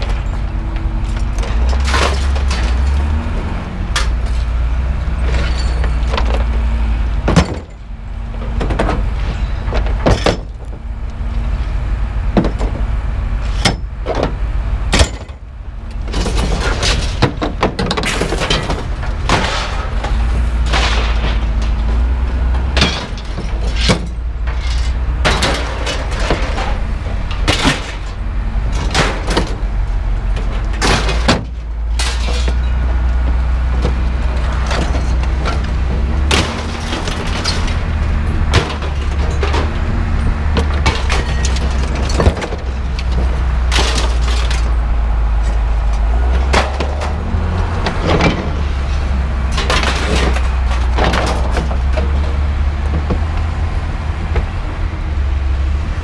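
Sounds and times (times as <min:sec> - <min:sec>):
steady low rumble: 0:00.0 - 0:56.0
scrap metal clanging: 0:05.2 - 0:06.5, 0:16.1 - 0:29.7, 0:30.3 - 0:32.9, 0:33.8 - 0:44.8.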